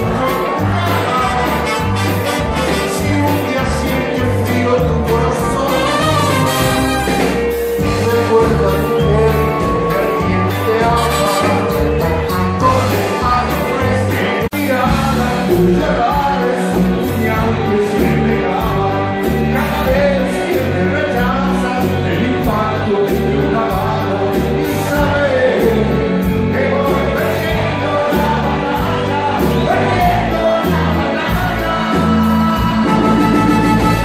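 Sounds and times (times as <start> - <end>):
live band music: 0.0 - 34.0
man singing into a microphone: 0.0 - 34.0.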